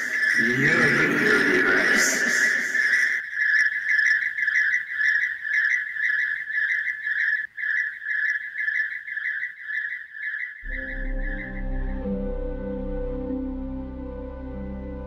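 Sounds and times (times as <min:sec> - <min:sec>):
high pulsing animal trill: 0:00.0 - 0:06.3.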